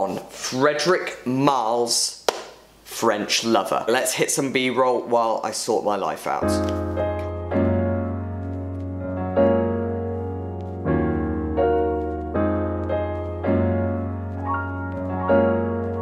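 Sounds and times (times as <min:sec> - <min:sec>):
soft keyboard chords: 0:06.3 - 0:16.0.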